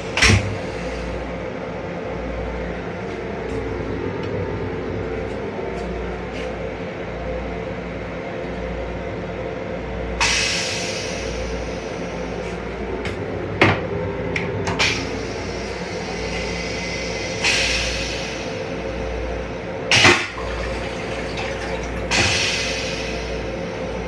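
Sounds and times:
rail car hum and rumble: 0:00.0 - 0:24.0
air hissing rushes: 0:14.8 - 0:19.2, 0:22.0 - 0:24.0.

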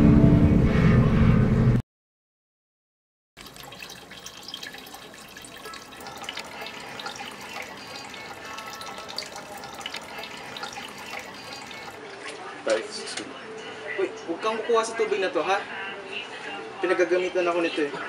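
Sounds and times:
small water splashes: 0:03.4 - 0:12.0
water running and dripping: 0:03.4 - 0:12.0.

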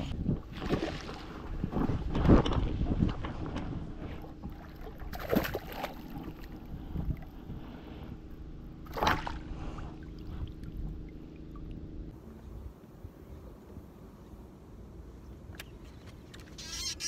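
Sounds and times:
steady low hum: 0:00.0 - 0:16.4
water splashing: 0:00.4 - 0:07.3, 0:08.8 - 0:11.9.

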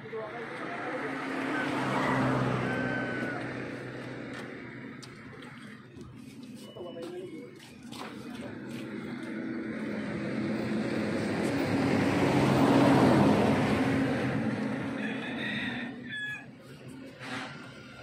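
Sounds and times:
engine passing by: 0:00.0 - 0:06.0, 0:08.0 - 0:18.0
rooster crowing: 0:01.3 - 0:04.2, 0:14.8 - 0:16.8.

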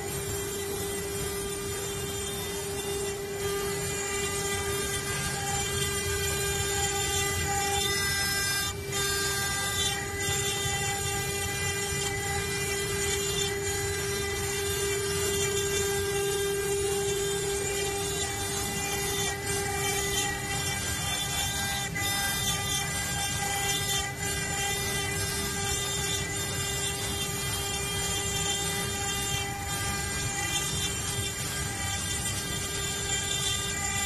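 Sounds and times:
router spindle whining: 0:00.0 - 0:34.0
bit grinding into stone: 0:14.0 - 0:34.0.

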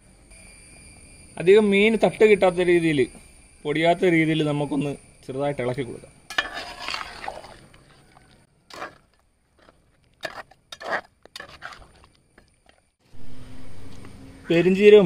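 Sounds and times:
spatula scraping metal pot: 0:06.3 - 0:08.0, 0:08.7 - 0:12.8.

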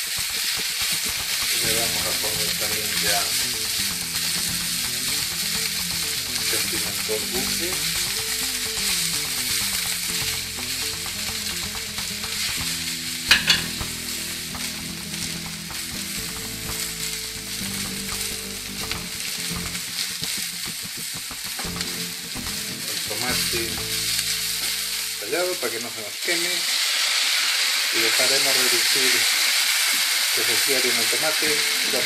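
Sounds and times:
vegetables sizzling in oil: 0:00.0 - 0:32.0
sharp knock: 0:18.8 - 0:22.9.

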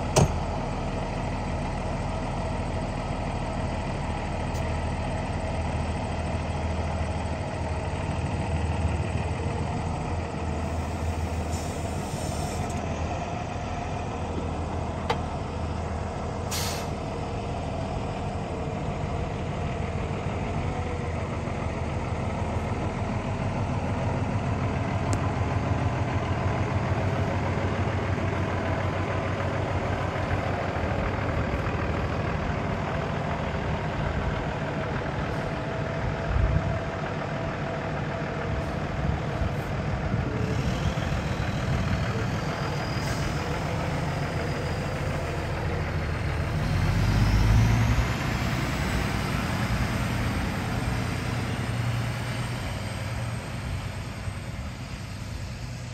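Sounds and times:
diesel truck engine: 0:00.0 - 0:55.9
short thump: 0:00.1 - 0:00.4.

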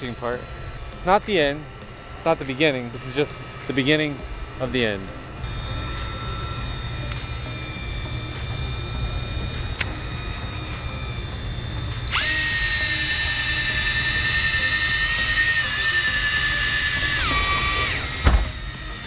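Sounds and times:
constant low hum: 0:00.0 - 0:19.0
fishing reel motor whining: 0:00.0 - 0:19.0
sharp thump: 0:18.2 - 0:18.6.

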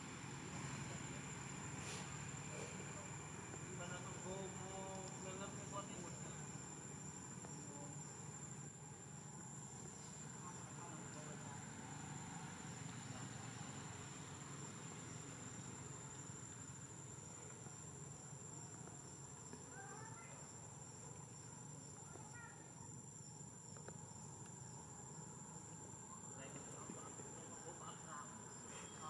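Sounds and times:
insects droning: 0:00.0 - 0:29.0
faint chirps: 0:12.9 - 0:29.0.

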